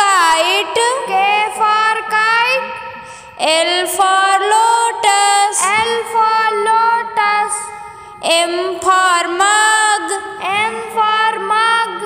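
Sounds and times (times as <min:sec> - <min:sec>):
high voice singing: 0:00.0 - 0:12.0.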